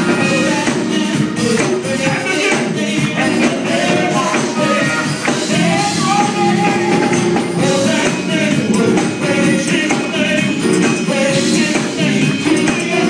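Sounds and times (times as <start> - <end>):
live band playing: 0.0 - 13.0
man singing: 0.0 - 13.0.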